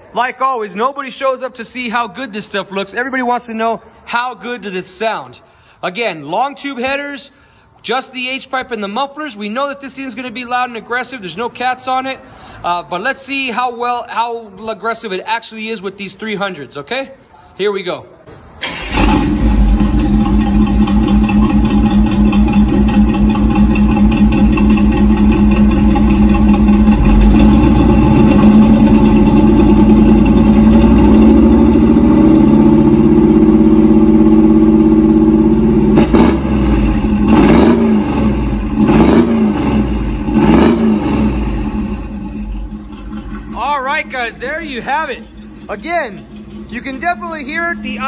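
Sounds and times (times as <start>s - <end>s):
engine idling and revving: 18.7s - 48.0s.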